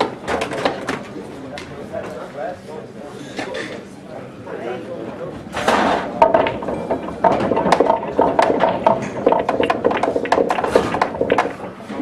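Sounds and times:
pool balls clacking: 0.0 - 1.1, 5.5 - 12.0
murmur of voices: 0.7 - 6.2.

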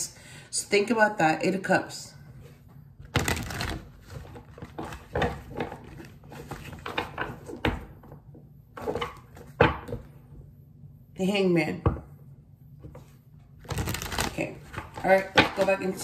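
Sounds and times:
cards being shuffled: 3.0 - 7.5, 13.0 - 16.0.

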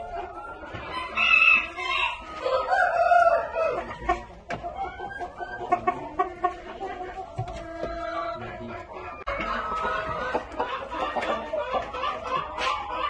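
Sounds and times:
chickens clucking: 0.0 - 13.0
rooster crowing: 0.9 - 3.8.

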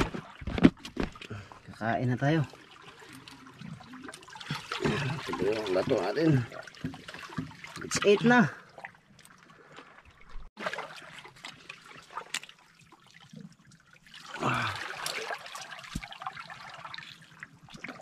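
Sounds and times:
water lapping among rocks: 2.5 - 18.0.

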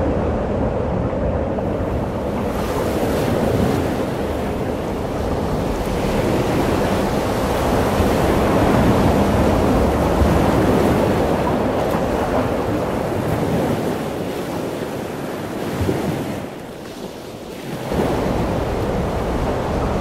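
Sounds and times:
waves breaking: 0.0 - 20.0
wind buffeting microphone: 0.0 - 20.0.

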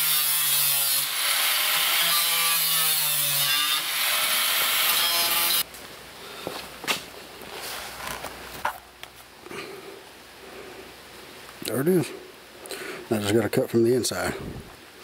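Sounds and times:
angle grinder cutting metal: 0.0 - 5.6.

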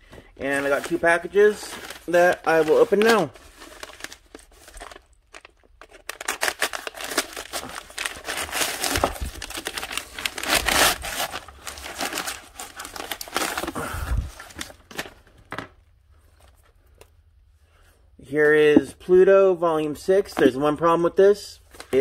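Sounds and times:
paper and bubble-wrap crinkling: 0.4 - 15.2.

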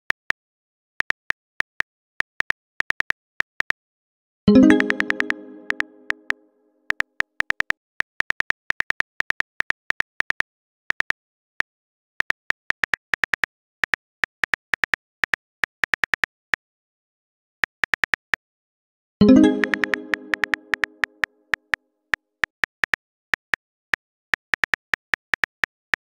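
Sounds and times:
message chime: 4.5 - 6.3, 19.2 - 21.1.

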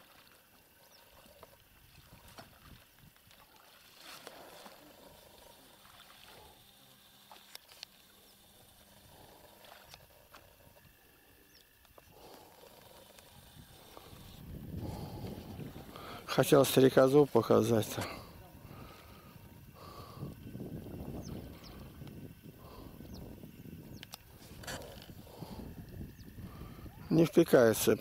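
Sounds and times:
soft ticks: 23.9 - 24.3.

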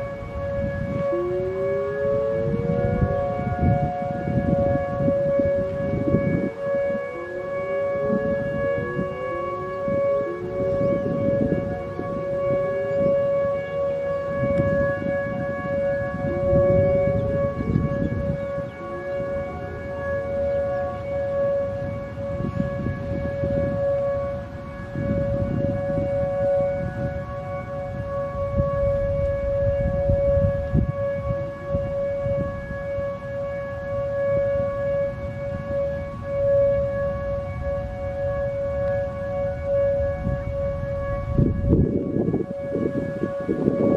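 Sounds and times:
electronic siren dual-tone wail: 0.0 - 43.9
faint rising siren tones: 0.0 - 43.9.

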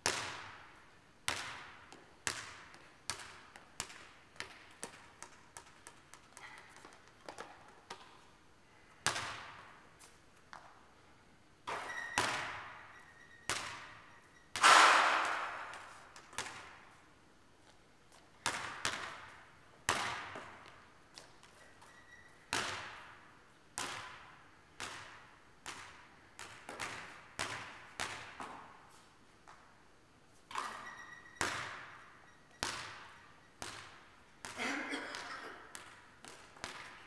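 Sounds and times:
basketball bouncing in gym: 0.0 - 10.9, 11.6 - 17.0, 17.6 - 29.8, 30.4 - 37.0
loud bang: 14.6 - 15.8.

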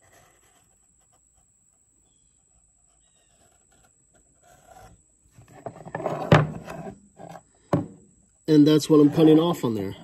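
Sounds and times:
marker scratching on plastic: 0.0 - 5.0
rustling and knocking: 4.2 - 8.1.

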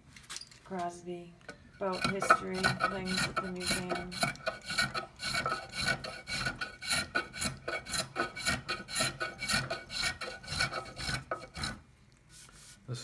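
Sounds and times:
hand plane scraping wood: 1.8 - 11.8.

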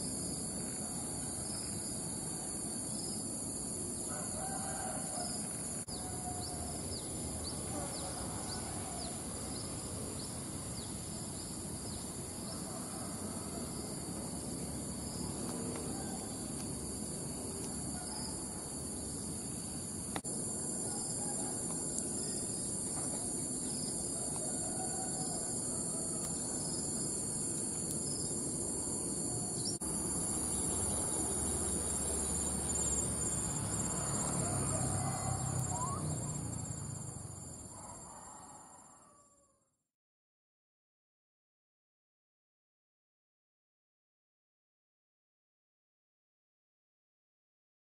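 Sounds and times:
insects chirring: 0.0 - 38.9.

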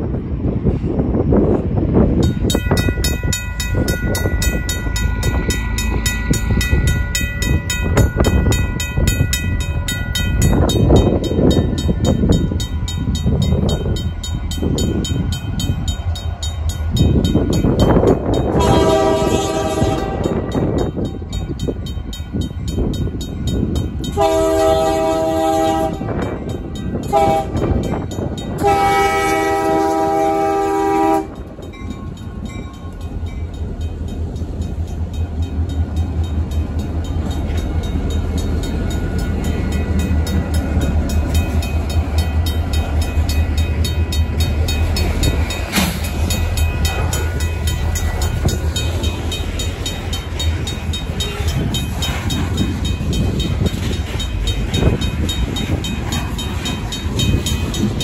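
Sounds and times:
diesel locomotives rumbling: 0.0 - 58.0
locomotive horn blasts: 18.4 - 20.6, 24.1 - 26.3, 27.0 - 27.9, 28.6 - 31.5
mechanical crossing bell ringing: 31.4 - 58.0.

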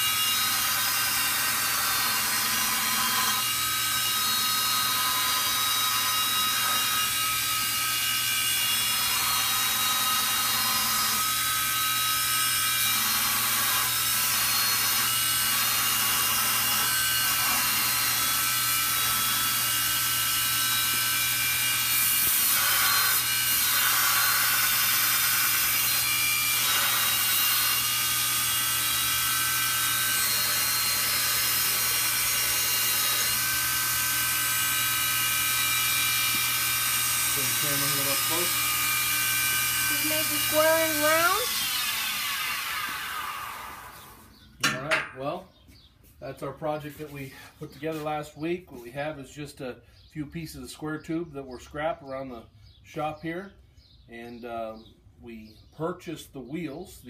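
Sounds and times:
belt grinder grinding steel: 0.0 - 44.4.

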